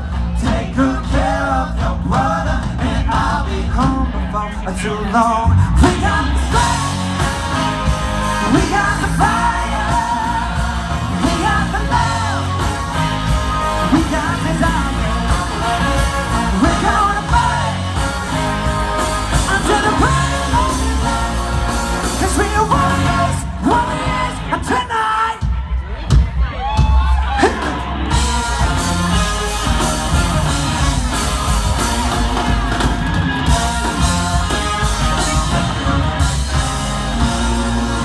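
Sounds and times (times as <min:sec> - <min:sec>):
horn section: 0:00.0 - 0:25.5, 0:27.2 - 0:38.0
man singing: 0:00.0 - 0:25.6
live rock band playing: 0:00.0 - 0:38.0.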